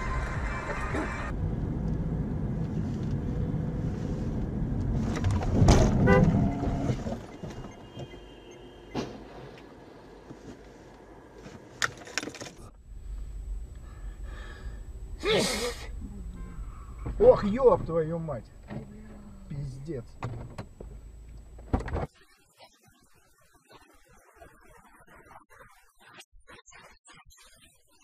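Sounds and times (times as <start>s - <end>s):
car road and engine noise: 0.0s - 22.1s.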